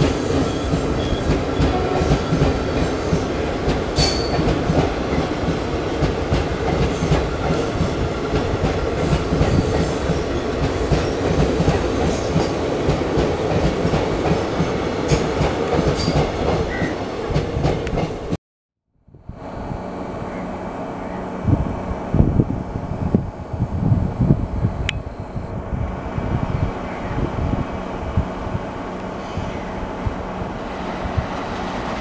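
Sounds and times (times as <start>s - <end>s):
clickety-clack over rail joints: 0.0s - 18.4s
train wheels rushing on rail: 0.0s - 18.4s, 19.4s - 32.0s.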